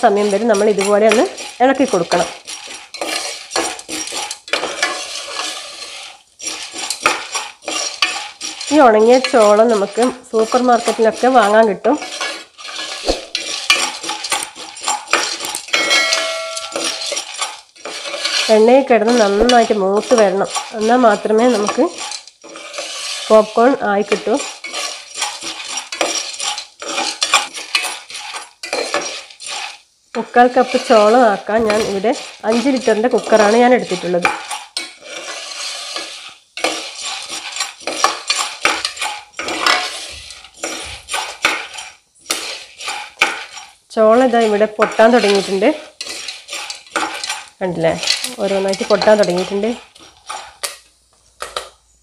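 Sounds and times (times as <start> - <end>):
spoon scraping and clattering pot: 0.0 - 51.8
spoon stirring corn in pot: 0.0 - 52.0
ringing tone: 15.8 - 17.1.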